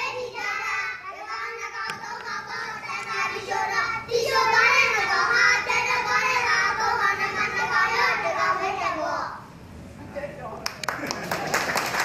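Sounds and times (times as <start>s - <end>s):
children singing in unison: 0.0s - 9.2s.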